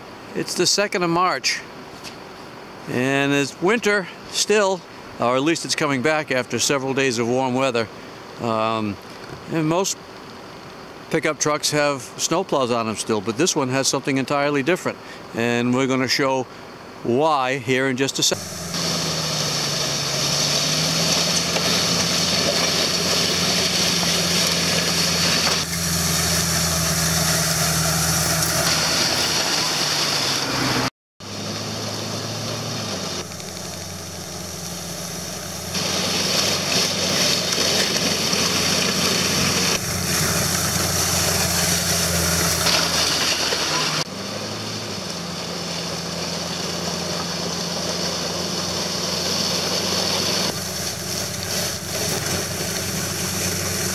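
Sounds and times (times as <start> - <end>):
truck engine running: 18.3 - 53.9
steady hiss: 31.8 - 44.1, 45.2 - 53.9.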